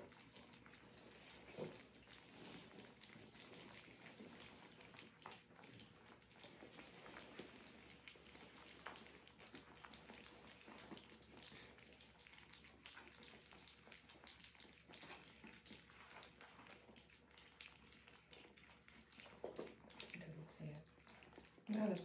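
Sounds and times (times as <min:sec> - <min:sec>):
puppies lapping wet food: 0:00.0 - 0:22.0.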